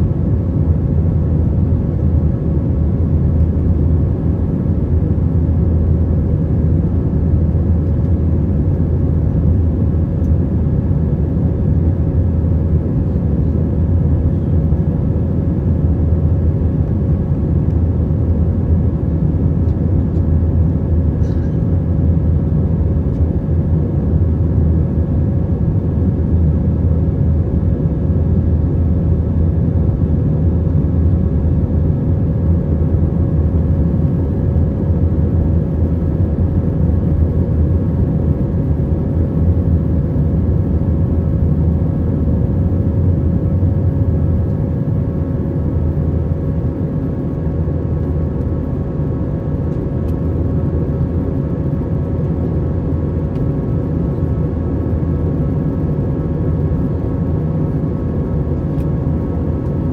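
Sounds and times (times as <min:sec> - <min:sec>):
airplane cabin engine rumble: 0:00.0 - 0:59.9
steady hum tones: 0:00.0 - 0:59.9.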